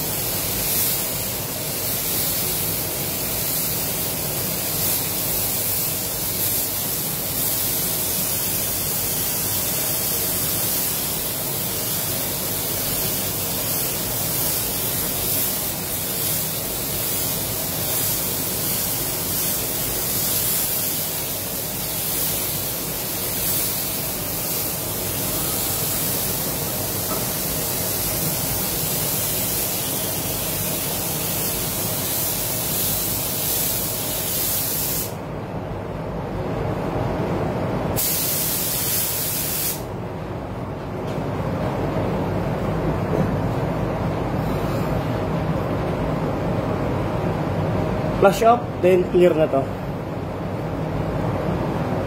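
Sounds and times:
spray gun hissing: 0.0s - 35.2s, 38.0s - 39.9s.

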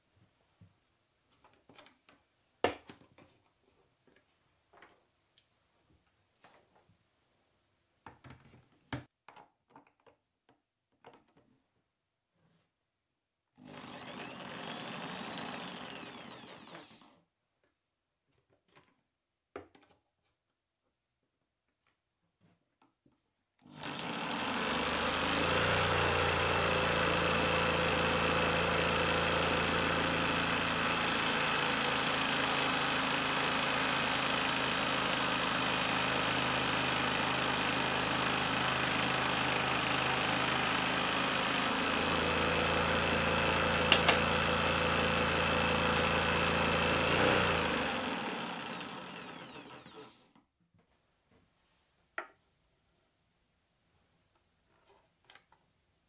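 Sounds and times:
drill motor whining: 13.6s - 17.2s, 23.7s - 36.4s, 37.7s - 50.4s
saw blade cutting wood: 13.7s - 17.0s, 43.7s - 45.0s, 46.1s - 50.3s.

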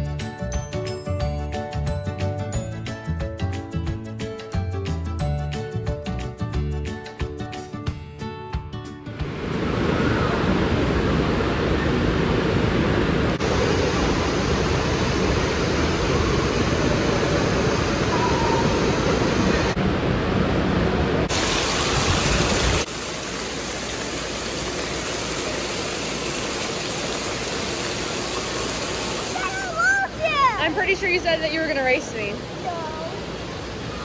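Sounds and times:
running water splashing: 21.3s - 34.0s.

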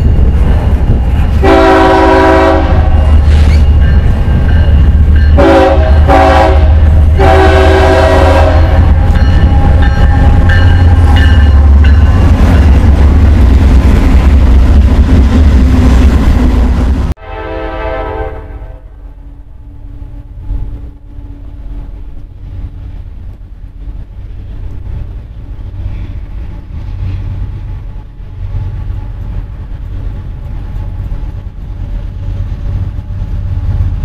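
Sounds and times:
freight train rumbling: 0.0s - 34.0s
locomotive air horn: 1.4s - 3.0s, 5.4s - 10.5s, 17.2s - 19.0s.

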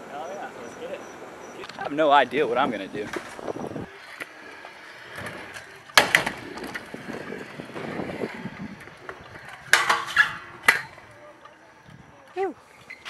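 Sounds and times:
scooter wheels rolling on concrete: 0.0s - 13.0s
scooter grinding metal bar: 2.6s - 11.6s.

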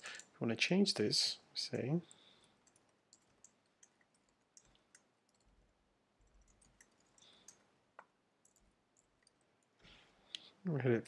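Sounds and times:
keystrokes on computer keyboard: 2.4s - 5.6s, 6.2s - 9.8s.

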